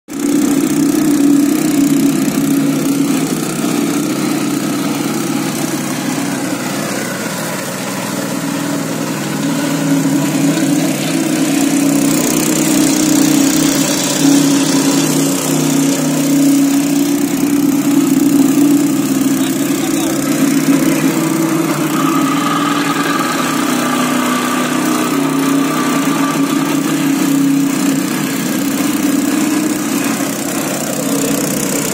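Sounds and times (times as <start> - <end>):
plate compactor engine running: 0.1 - 31.9.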